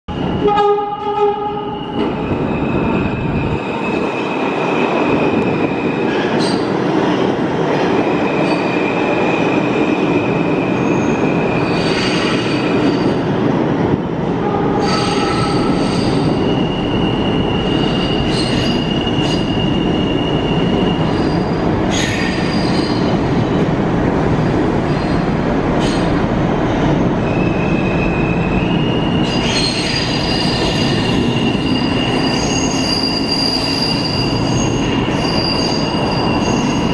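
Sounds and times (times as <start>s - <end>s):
subway train wheels rumbling: 0.1s - 36.9s
high wheel squeals: 14.8s - 23.1s, 27.3s - 36.9s.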